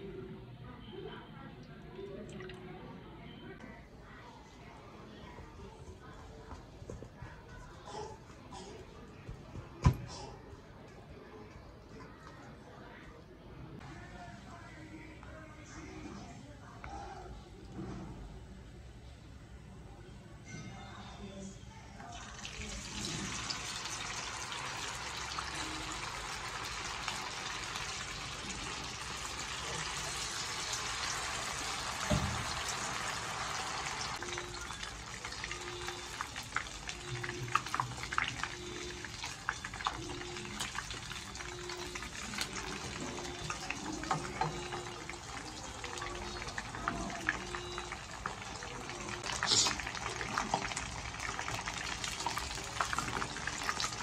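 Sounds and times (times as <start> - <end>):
chicken deep-frying in oil: 21.8 - 54.0.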